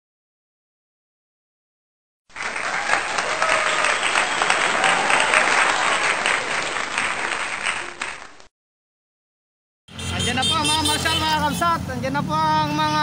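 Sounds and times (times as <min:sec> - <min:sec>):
crowd clapping: 0:02.3 - 0:08.5.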